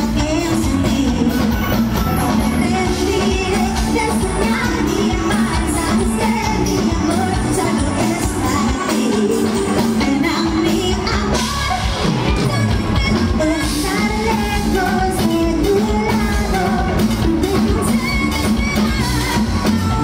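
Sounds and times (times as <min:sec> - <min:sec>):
live cumbia band playing: 0:00.0 - 0:20.0
woman singing: 0:00.0 - 0:20.0.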